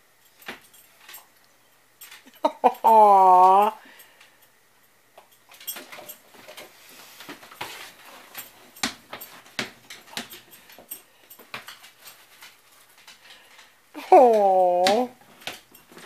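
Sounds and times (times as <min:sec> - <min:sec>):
dog paws tapping on wooden floor: 0:05.2 - 0:16.0.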